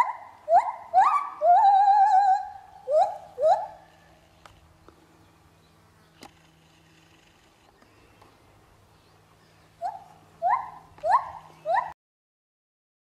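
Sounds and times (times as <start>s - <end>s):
gibbon whooping hoots: 0.0s - 3.9s, 9.8s - 12.0s.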